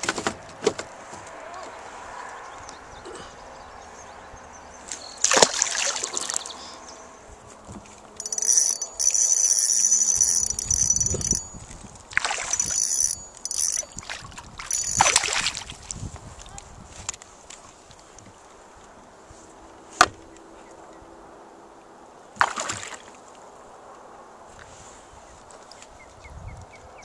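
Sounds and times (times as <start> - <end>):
water splashing: 5.2 - 6.8, 12.1 - 16.0, 22.4 - 23.2.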